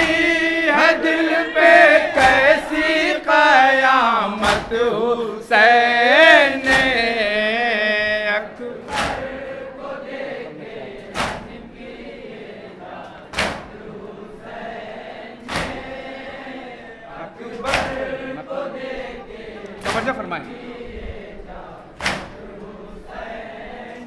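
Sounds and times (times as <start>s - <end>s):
group of voices chanting: 0.0s - 24.0s
chest beating slaps: 2.1s - 2.7s, 4.4s - 4.9s, 6.6s - 7.2s, 8.9s - 9.4s, 11.0s - 11.7s, 13.3s - 13.9s, 15.4s - 16.0s, 17.5s - 18.2s, 19.7s - 20.3s, 22.0s - 22.5s.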